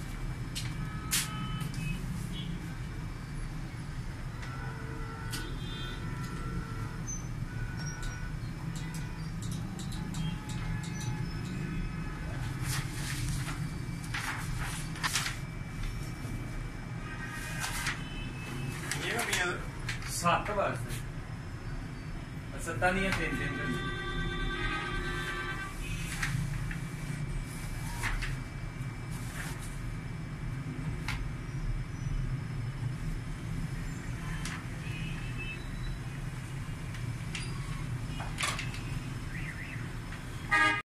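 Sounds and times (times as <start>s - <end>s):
copier mechanical hum: 0.0s - 40.8s
paper rustling: 12.3s - 16.4s, 17.4s - 18.1s, 18.7s - 20.2s, 26.0s - 28.4s, 29.1s - 29.9s.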